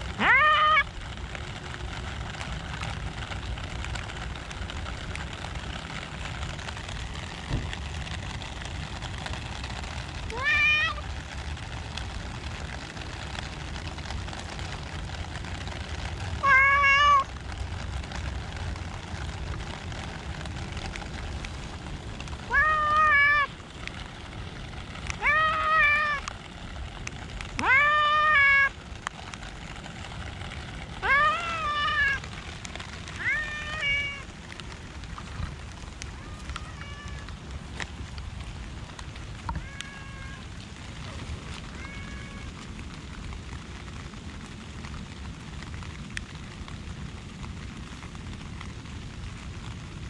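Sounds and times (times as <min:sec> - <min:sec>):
cat meowing: 0:00.2 - 0:00.9, 0:10.4 - 0:11.0, 0:16.4 - 0:17.3, 0:22.5 - 0:23.5, 0:25.2 - 0:26.2, 0:27.6 - 0:28.7, 0:31.0 - 0:32.2, 0:33.2 - 0:34.2, 0:36.2 - 0:37.3, 0:39.5 - 0:40.5, 0:41.8 - 0:42.5.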